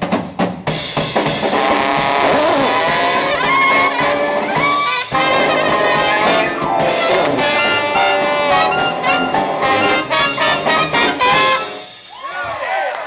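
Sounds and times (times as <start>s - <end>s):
drums: 0.0s - 13.0s
piano: 1.0s - 12.1s
trombone: 1.3s - 12.0s
clarinet: 1.6s - 11.9s
sousaphone: 3.4s - 10.8s.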